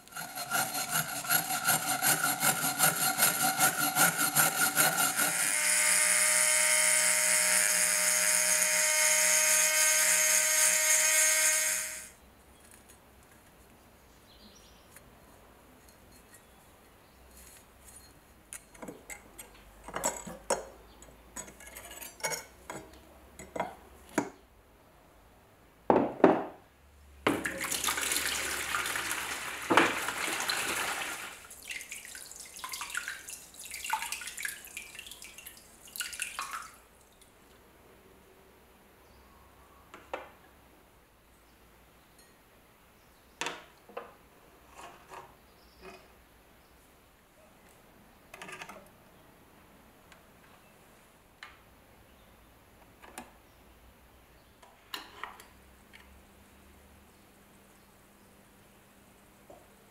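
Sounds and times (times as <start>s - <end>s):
power tool motor whine: 5.1s - 12.1s
water pouring into plastic tub: 27.4s - 36.8s.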